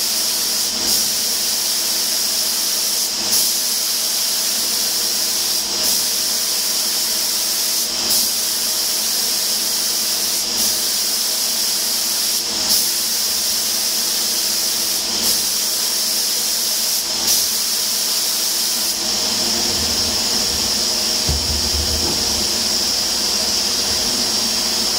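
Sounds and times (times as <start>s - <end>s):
spray gun hissing: 0.0s - 24.9s.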